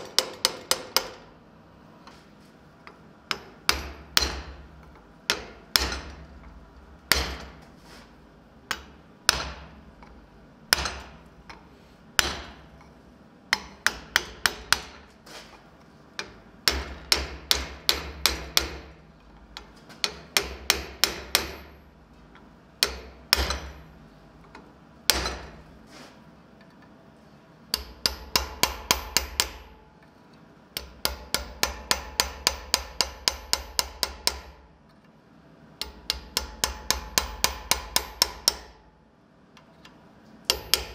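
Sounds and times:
hammer striking steel on anvil: 0:03.3 - 0:04.7, 0:05.3 - 0:06.2, 0:07.1 - 0:07.6, 0:08.7 - 0:09.7, 0:10.7 - 0:12.7, 0:13.5 - 0:15.1, 0:16.2 - 0:19.0, 0:20.0 - 0:21.8, 0:22.8 - 0:23.9, 0:25.1 - 0:25.6, 0:27.7 - 0:29.8, 0:30.8 - 0:34.6, 0:35.8 - 0:38.8, 0:40.5 - 0:40.9.

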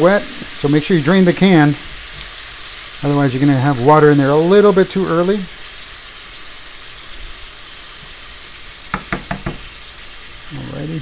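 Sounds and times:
mushrooms sizzling in skillet: 0:00.0 - 0:11.0
spatula knocking on pan: 0:08.9 - 0:09.8.

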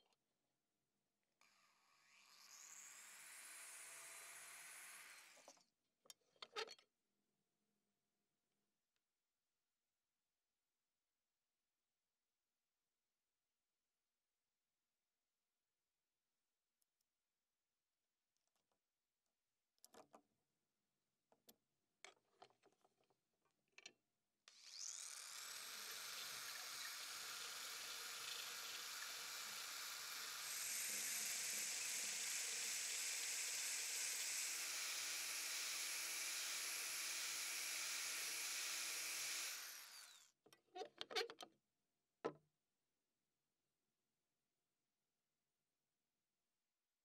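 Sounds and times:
electric drill motor: 0:01.4 - 0:05.6, 0:24.5 - 0:40.3.

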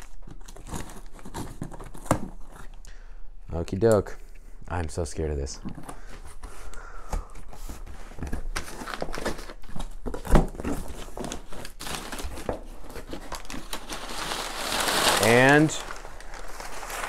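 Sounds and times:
paper rustling and crinkling: 0:07.4 - 0:17.0.

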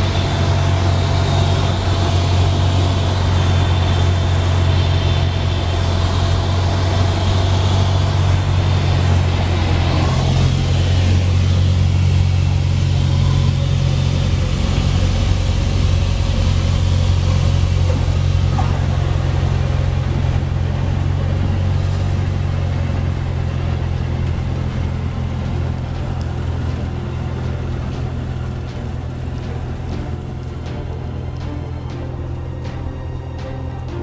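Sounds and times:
propeller engine drone: 0:00.0 - 0:34.0
rushing air: 0:00.0 - 0:34.0.

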